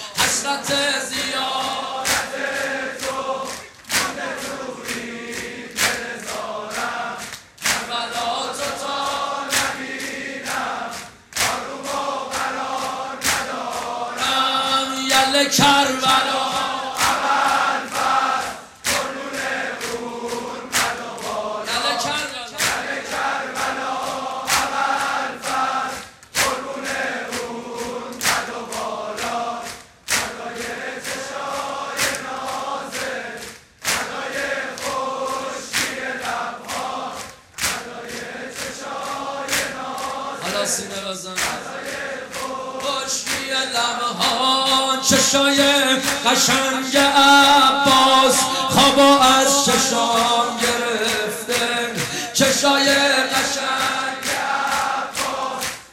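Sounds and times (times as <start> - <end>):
singer leading chant: 0.0 - 55.8
crowd of men chanting: 0.0 - 55.9
hands slapping chests: 2.0 - 2.4, 3.0 - 8.0, 9.4 - 14.2, 15.1 - 40.3, 41.4 - 43.5, 53.3 - 55.9.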